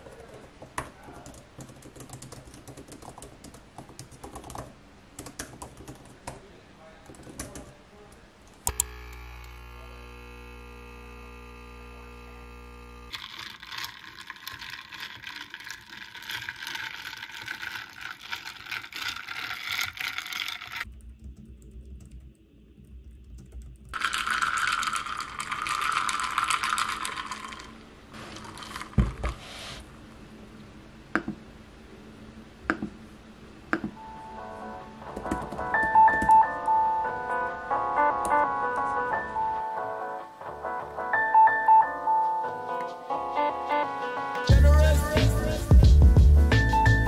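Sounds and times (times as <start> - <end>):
keyboard typing: 1.1 - 6.4, 7.1 - 7.7, 14.4 - 27.7, 35.1 - 36.7
steady hum: 8.6 - 13.2.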